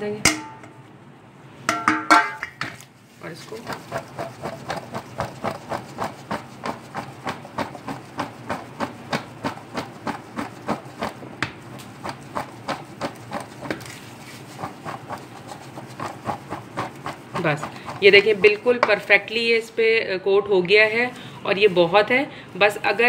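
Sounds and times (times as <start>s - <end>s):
fries rattling in metal sieve: 3.2s - 19.7s.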